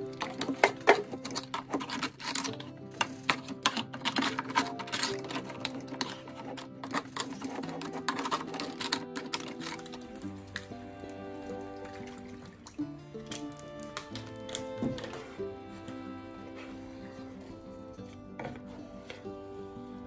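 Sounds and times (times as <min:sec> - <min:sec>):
wooden spatula scraping a pan: 0:00.0 - 0:19.8
background music: 0:00.0 - 0:20.0.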